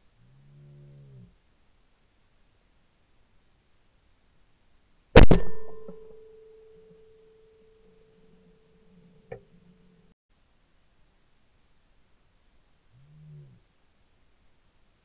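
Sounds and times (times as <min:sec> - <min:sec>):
shotgun shot: 0:05.2 - 0:06.3
clay target crack: 0:05.2 - 0:06.4.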